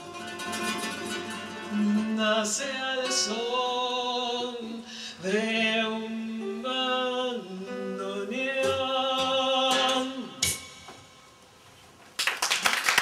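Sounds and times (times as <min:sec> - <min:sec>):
guitar: 0:00.0 - 0:11.2
woman singing: 0:01.7 - 0:10.4.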